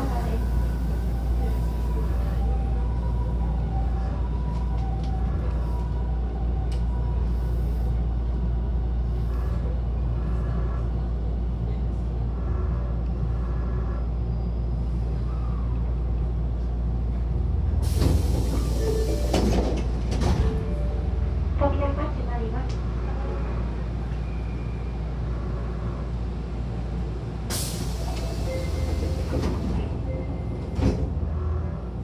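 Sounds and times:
train interior rumble: 0:00.0 - 0:32.0
sliding doors hissing open: 0:17.8 - 0:19.8, 0:27.5 - 0:29.9.

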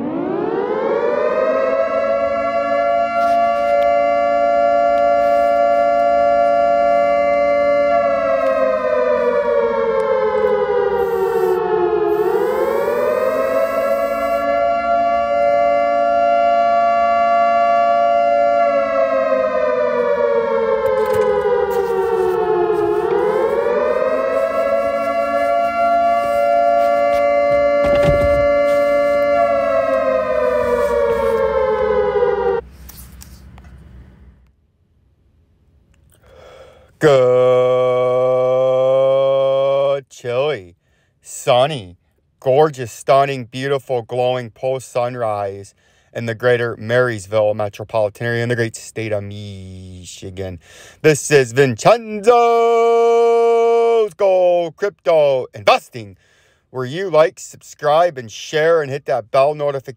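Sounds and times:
air-raid siren wailing: 0:00.0 - 0:32.8, 0:36.4 - 0:40.0, 0:51.9 - 0:55.7.

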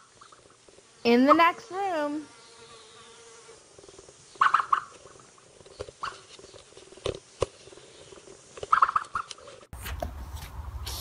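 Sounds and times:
young ostrich chirping: 0:04.3 - 0:05.2, 0:05.8 - 0:06.6, 0:08.6 - 0:09.4.

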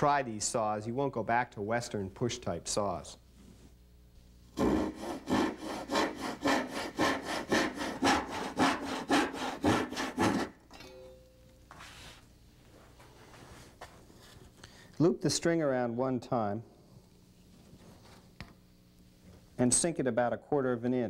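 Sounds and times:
hand saw cutting wood: 0:04.6 - 0:10.6.

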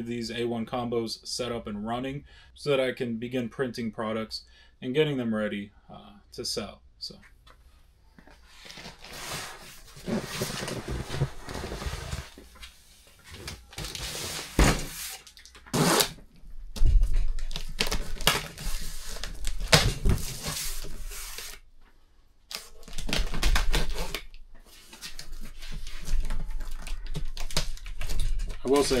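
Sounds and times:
cardboard scraping and rustling: 0:08.4 - 0:12.5, 0:13.3 - 0:16.2
blade slitting packing tape: 0:15.1 - 0:16.2.

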